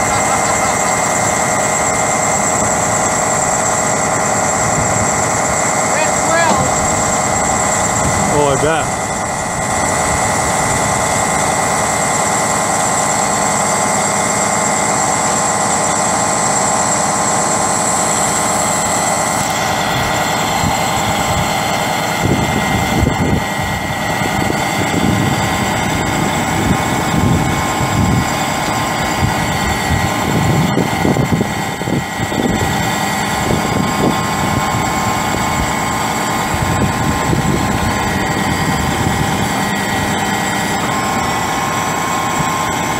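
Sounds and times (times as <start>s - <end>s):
uneven low rumbles: 0.0s - 11.9s
diesel truck engine running: 0.0s - 42.9s
hydraulic crane whine: 0.0s - 42.9s.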